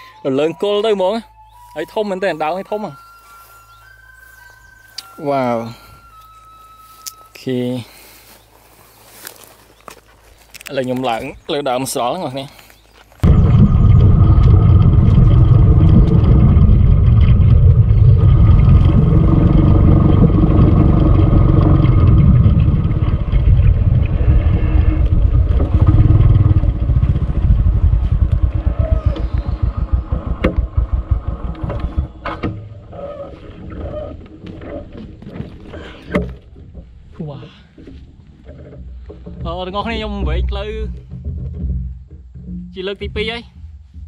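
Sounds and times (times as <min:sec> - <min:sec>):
small motorcycle engine running: 0:13.2 - 0:32.2
wind rumble on microphone: 0:13.2 - 0:44.0.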